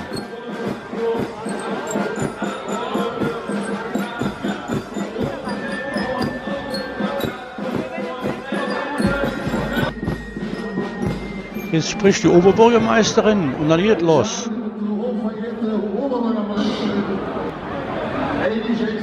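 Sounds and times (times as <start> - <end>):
steady drum beat: 0.0 - 13.8
crowd voices: 0.0 - 19.0.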